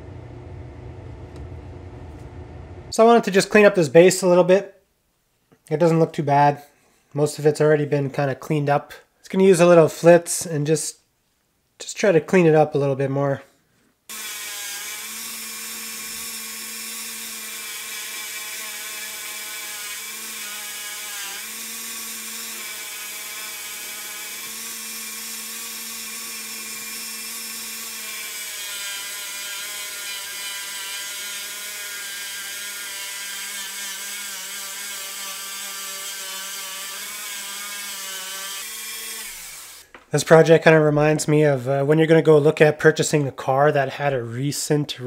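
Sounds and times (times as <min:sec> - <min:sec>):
rotary tool high whine: 0:14.1 - 0:39.9.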